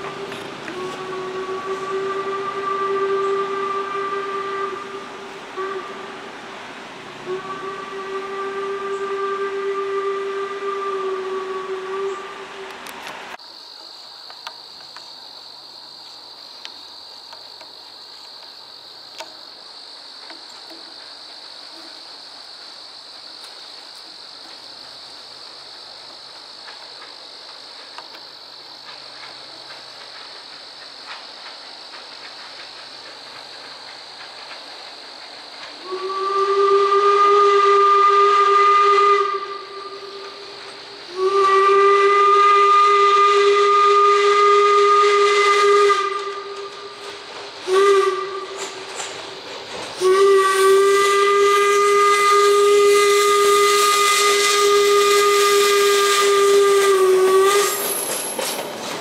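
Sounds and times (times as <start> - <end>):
steam locomotive whistle: 0.0 - 6.2, 7.2 - 12.9, 35.8 - 49.1, 50.0 - 58.4
faint high hiss: 0.0 - 59.0.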